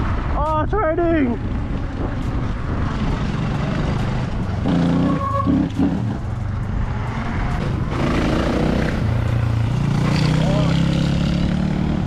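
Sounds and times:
rumble of wind and tyres: 0.0 - 12.0
dirt bike engine revving: 7.6 - 12.0.

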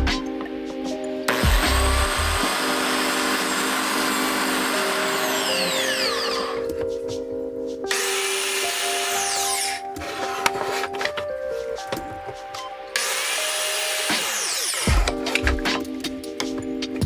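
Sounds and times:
biscuit jointer motor cutting: 1.3 - 6.7, 7.9 - 11.0, 13.0 - 15.4.

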